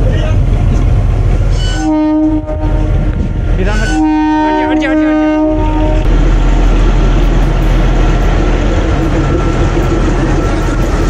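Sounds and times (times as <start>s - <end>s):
train rumbling past: 0.0s - 11.0s
locomotive multi-tone horn: 1.5s - 3.0s, 3.7s - 6.1s.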